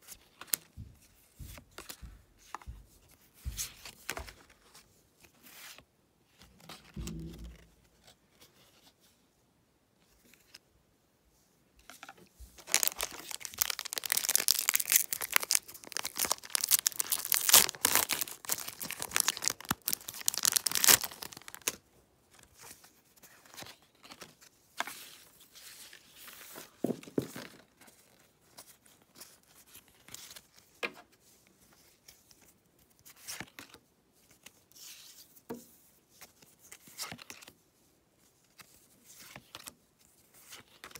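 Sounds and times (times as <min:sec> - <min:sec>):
trading cards rustling: 0:11.9 - 0:21.8
foil wrapper tearing and crinkling: 0:12.6 - 0:21.8.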